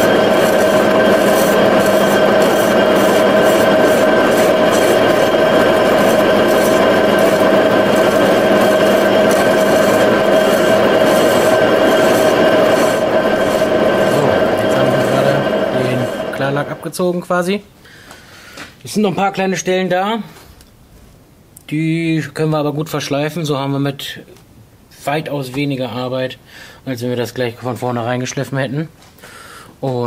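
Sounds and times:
lathe tool scraping metal wheel: 0.0 - 16.9
steady ringing tone: 0.0 - 16.9.

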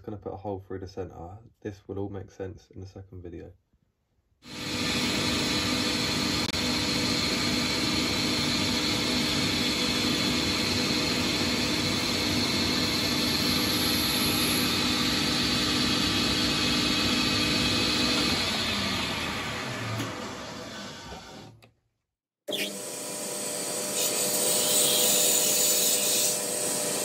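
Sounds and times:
lathe motor hum and whine: 4.5 - 21.5, 22.5 - 27.0.

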